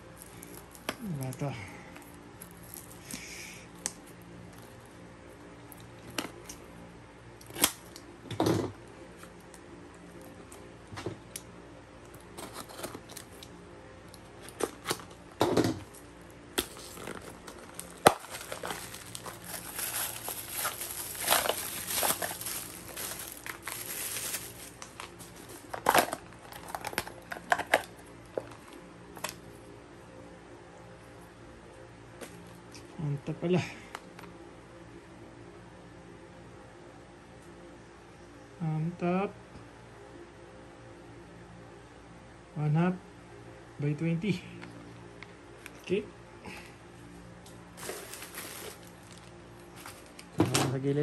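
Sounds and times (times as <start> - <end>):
plastic packaging crinkling and tearing: 0.0 - 3.2, 12.2 - 13.6, 15.9 - 29.4, 47.8 - 50.4.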